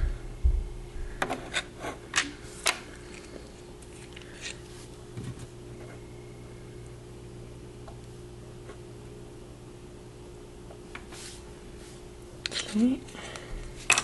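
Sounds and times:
steady low hum: 0:00.0 - 0:14.0.

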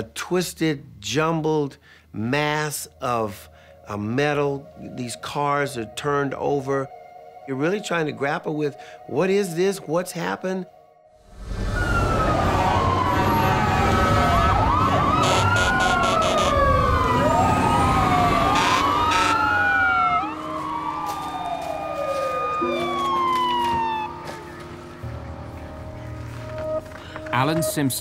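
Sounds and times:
sirens wailing: 0:11.2 - 0:28.0
low vehicle rumble: 0:11.3 - 0:27.4.

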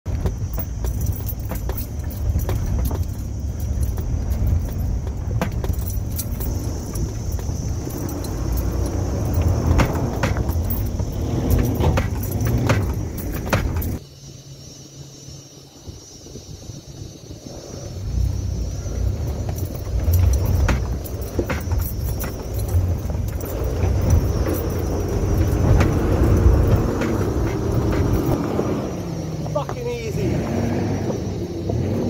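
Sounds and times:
engine and drivetrain rumble: 0:00.0 - 0:32.0
engine hum from outside: 0:00.0 - 0:32.0
clicks knocks and rattles: 0:00.1 - 0:14.0, 0:19.5 - 0:28.4.

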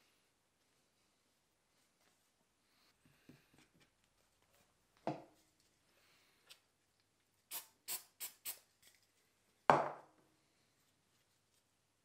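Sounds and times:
knocks on a workbench: 0:09.7 - 0:10.0.

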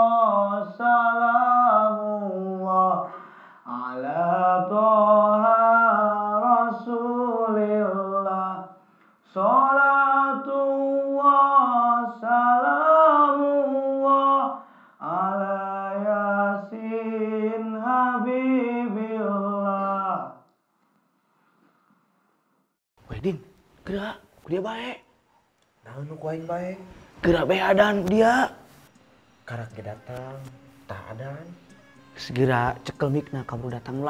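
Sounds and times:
man chanting a devotional melody: 0:29.4 - 0:34.0.

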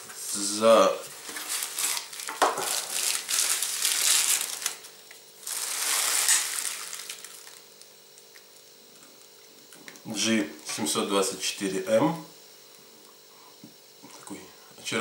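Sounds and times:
plastic wrapping crinkling: 0:01.1 - 0:07.9.

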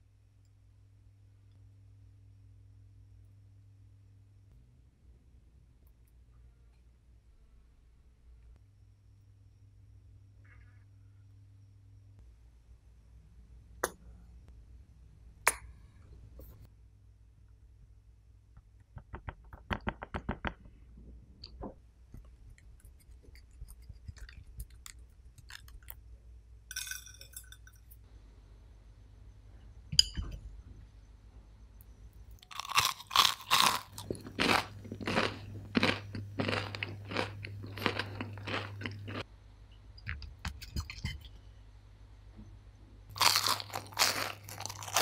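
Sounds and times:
light clinks: 0:26.7 - 0:28.0
crispy crust crunching: 0:32.4 - 0:39.2, 0:43.1 - 0:45.0.

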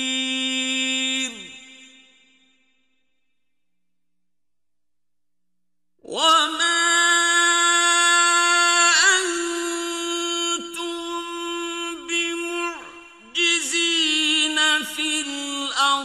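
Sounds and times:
man chanting recitation: 0:00.0 - 0:01.8, 0:06.1 - 0:16.0.

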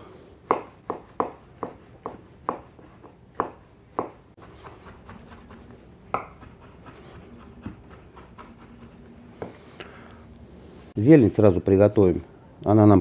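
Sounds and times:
knife chopping on cutting board: 0:00.4 - 0:09.0.

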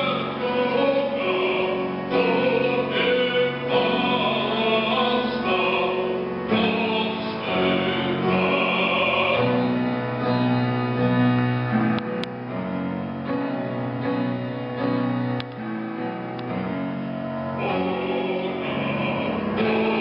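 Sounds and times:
man singing classically: 0:00.0 - 0:09.8, 0:17.6 - 0:20.0
instrumental accompaniment: 0:00.0 - 0:20.0.

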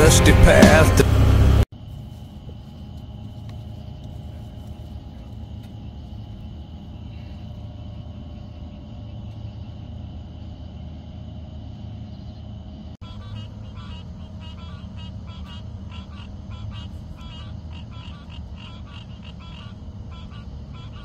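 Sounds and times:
song playing: 0:00.0 - 0:01.6
low outdoor rumble: 0:00.0 - 0:21.0.

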